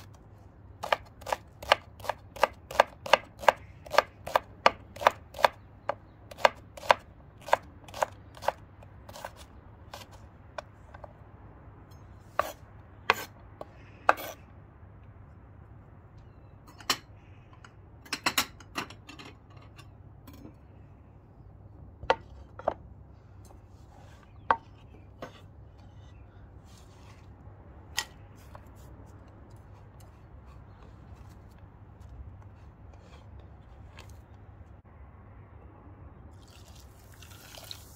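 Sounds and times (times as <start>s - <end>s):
knife chopping on wooden board: 0.8s - 10.7s.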